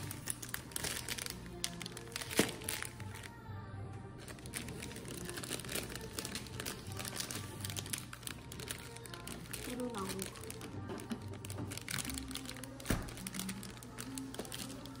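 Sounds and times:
plastic wrappers crinkling: 0:00.0 - 0:03.4, 0:04.2 - 0:15.0
background music: 0:00.0 - 0:15.0.

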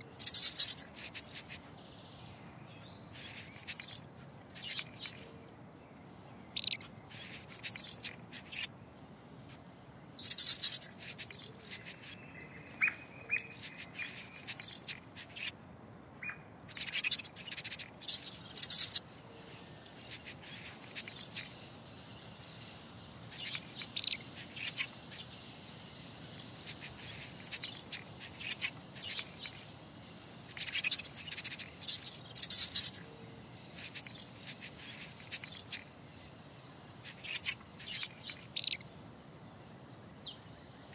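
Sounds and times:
mouse squeaking: 0:00.0 - 0:01.6, 0:03.1 - 0:05.3, 0:06.6 - 0:08.7, 0:10.2 - 0:12.2, 0:13.3 - 0:15.6, 0:16.6 - 0:19.0, 0:19.8 - 0:21.5, 0:23.3 - 0:25.3, 0:26.4 - 0:29.7, 0:30.4 - 0:33.1, 0:33.7 - 0:35.9, 0:37.0 - 0:38.8.

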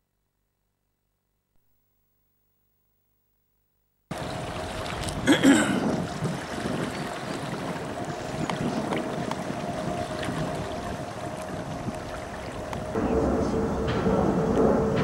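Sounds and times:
faint hum: 0:00.1 - 0:15.0
water splashing and lapping: 0:04.1 - 0:13.0.

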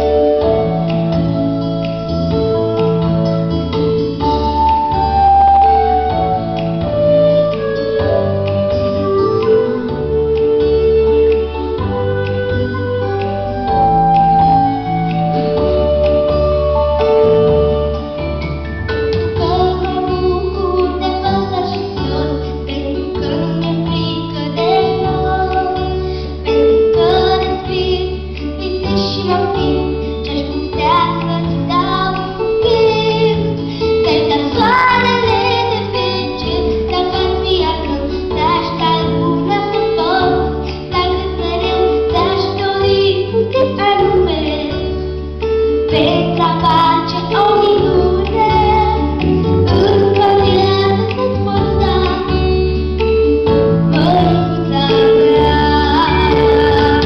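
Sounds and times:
instrumental accompaniment: 0:00.0 - 0:57.0
girl singing into a microphone: 0:19.3 - 0:45.2, 0:45.9 - 0:52.8, 0:53.9 - 0:57.0.

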